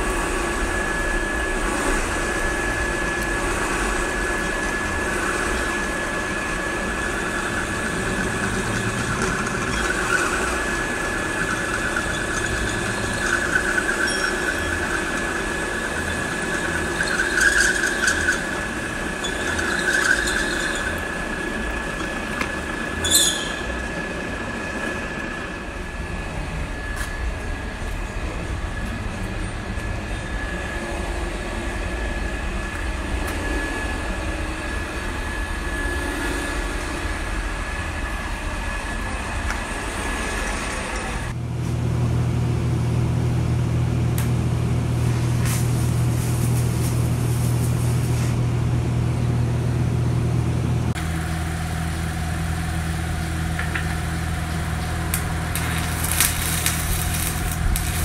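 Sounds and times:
drill motor whine: 0.0s - 41.4s
drill bit squealing in metal: 2.3s - 25.2s.

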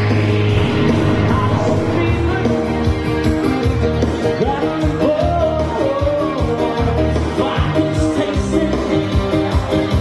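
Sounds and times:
rock and roll music: 0.0s - 10.0s
bending pitched notes: 0.2s - 3.2s.

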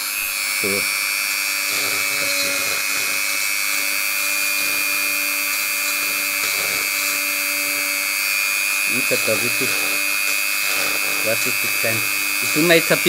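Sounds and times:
rotary tool high whine: 0.0s - 13.0s.

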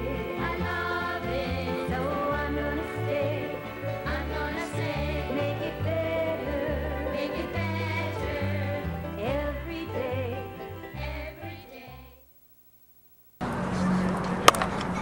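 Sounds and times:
bass line: 0.0s - 11.6s
person singing: 0.0s - 12.2s.

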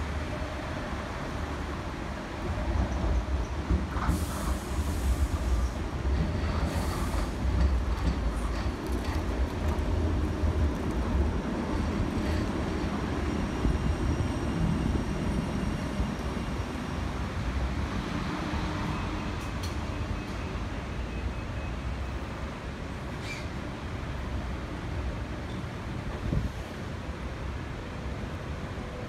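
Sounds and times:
tram wheels rumbling: 0.0s - 21.1s.

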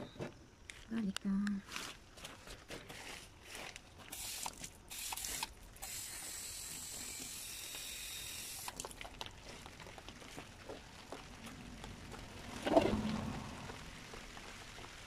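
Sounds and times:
water dripping: 4.0s - 15.0s
hose nozzle spraying water: 4.1s - 9.1s.

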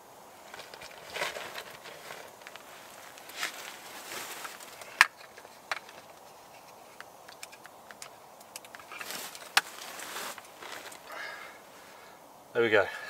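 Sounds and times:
rustling of light string: 0.4s - 12.0s
sharp clicks: 4.8s - 9.7s.

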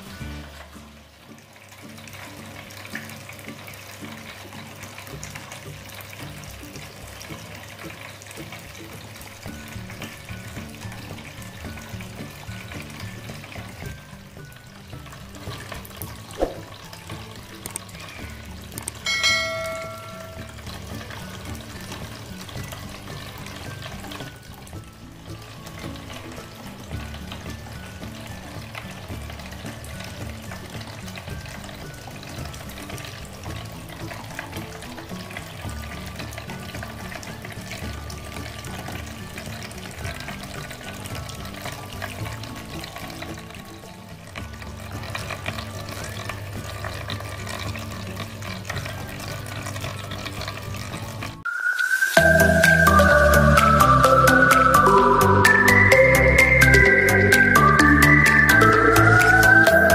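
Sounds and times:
background music: 0.0s - 59.9s
water trickling and splashing: 0.0s - 59.9s
bright bell chime: 19.0s - 20.7s, 51.5s - 59.9s.

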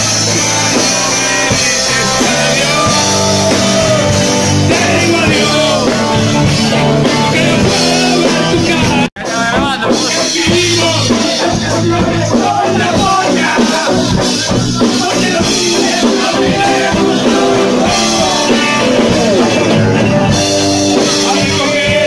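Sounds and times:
loud rock band playing: 0.0s - 22.0s
people singing into microphone: 0.0s - 22.0s.

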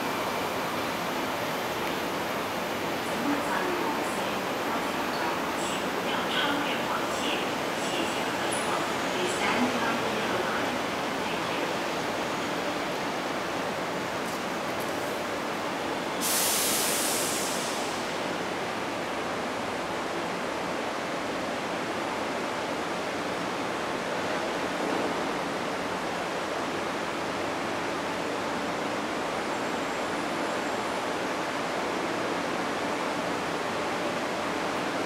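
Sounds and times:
railway platform ambience hiss: 0.0s - 35.0s
loud surge of high hiss: 16.2s - 18.1s.

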